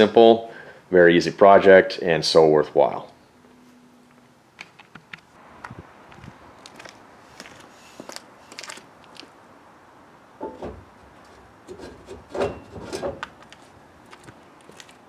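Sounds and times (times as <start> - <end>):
footsteps on concrete: 5.6 - 9.3, 13.2 - 15.0
metal frame knocks and clanks: 10.4 - 10.9, 11.7 - 13.3.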